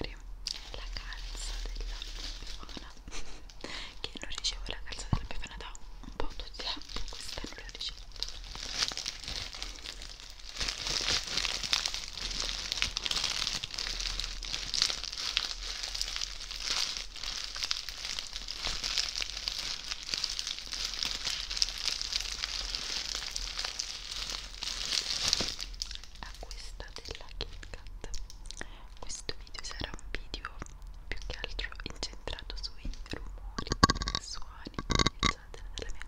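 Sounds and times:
plastic bag crinkling: 0.4 - 5.6, 6.2 - 26.4, 32.9 - 35.4.

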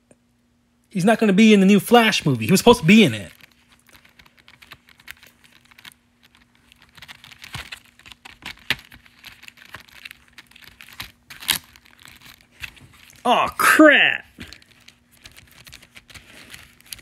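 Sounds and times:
fingers handling packaging: 2.4 - 13.3, 14.3 - 17.0.

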